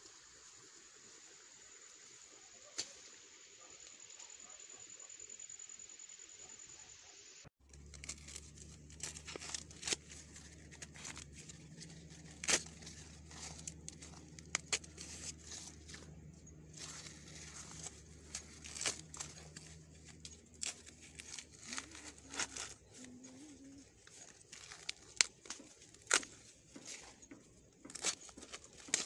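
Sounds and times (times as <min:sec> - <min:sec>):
corn husks rustling and crackling: 0:07.6 - 0:29.0
corn stalks snapping and tearing: 0:07.6 - 0:29.0.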